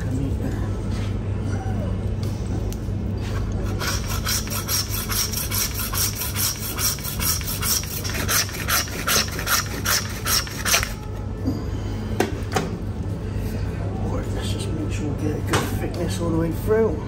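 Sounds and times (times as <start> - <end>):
bone saw rasping strokes: 3.6 - 10.9.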